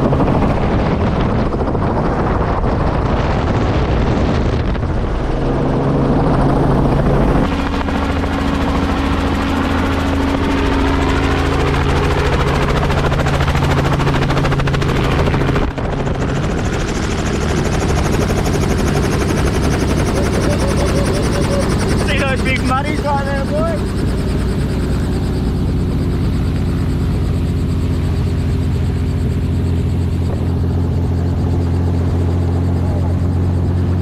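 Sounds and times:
helicopter engine and rotor drone: 0.0s - 34.0s.

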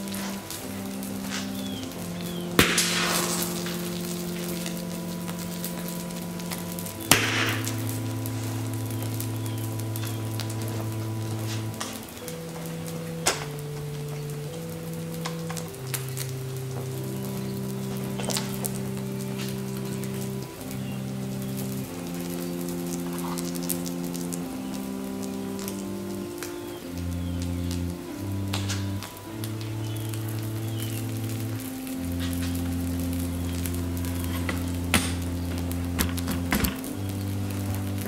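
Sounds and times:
burning plastic crackling: 0.0s - 38.0s
slow held chords music: 0.0s - 38.0s
sharp pops: 1.3s - 8.4s.

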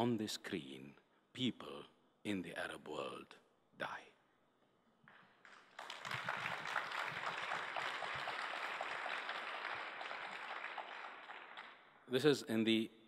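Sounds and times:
audience applauding: 5.4s - 11.8s.

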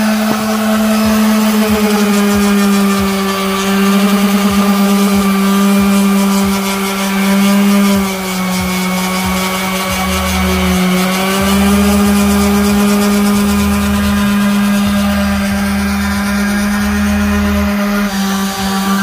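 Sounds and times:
orbital sander sanding wood: 0.0s - 19.0s.

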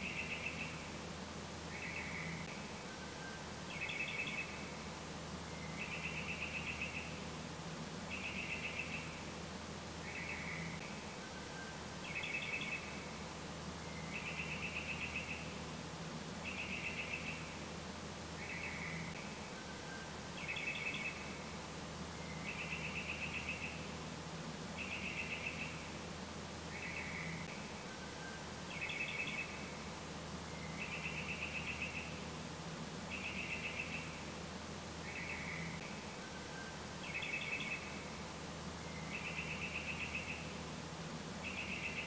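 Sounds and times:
bird chirping: 0.0s - 0.9s, 1.7s - 4.8s, 5.5s - 7.3s, 8.1s - 9.3s, 10.0s - 13.2s, 13.8s - 15.6s, 16.4s - 17.6s, 18.4s - 21.5s, 22.1s - 24.0s, 24.8s - 26.0s, 26.6s - 29.9s, 30.5s - 32.3s, 33.1s - 34.3s, 35.0s - 38.2s, 38.8s - 40.6s, 41.4s - 42.0s
low steady hum: 0.0s - 42.0s.

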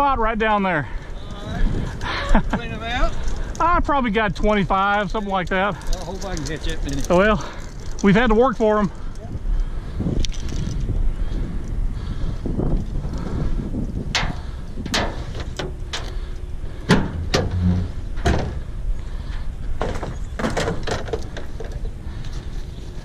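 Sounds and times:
wind on microphone: 1.0s - 3.6s, 7.8s - 23.0s
fishing gear clunking on truck bed: 14.1s - 18.7s, 19.3s - 21.9s
tailgate thud: 16.8s - 18.7s.

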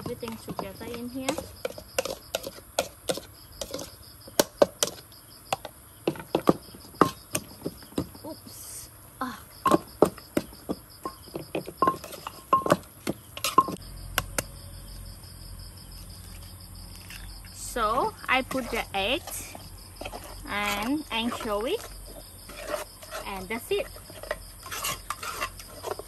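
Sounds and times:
crickets chirping: 0.0s - 26.0s.

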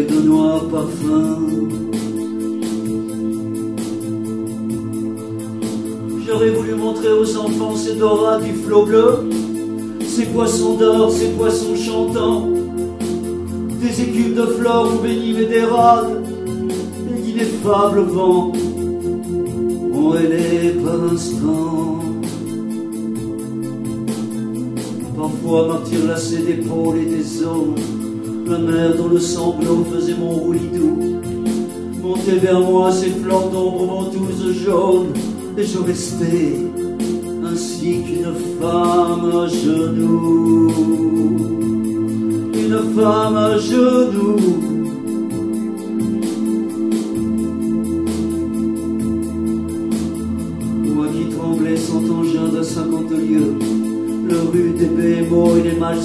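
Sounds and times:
man singing held notes: 0.0s - 2.1s, 10.1s - 12.7s, 19.9s - 22.3s, 37.4s - 41.7s
man singing: 0.0s - 2.4s, 6.2s - 13.0s, 13.7s - 18.9s, 19.9s - 22.6s, 25.1s - 31.3s, 32.0s - 45.4s, 50.9s - 56.0s
electronic keyboard chords: 0.0s - 56.0s.

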